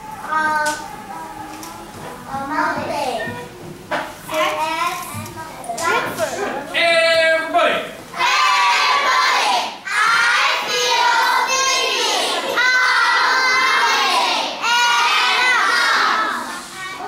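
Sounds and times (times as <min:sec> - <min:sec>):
children chanting in unison: 0:08.2 - 0:16.7.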